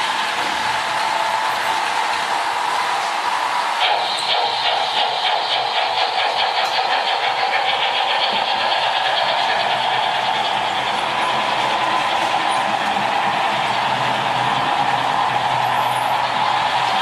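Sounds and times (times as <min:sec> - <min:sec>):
model train electric hum: 0:00.0 - 0:17.0
wheels clicking over track: 0:00.0 - 0:17.0.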